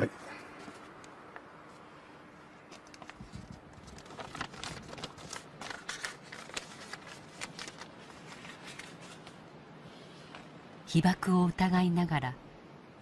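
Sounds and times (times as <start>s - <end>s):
rustling and crackling: 2.6s - 9.4s.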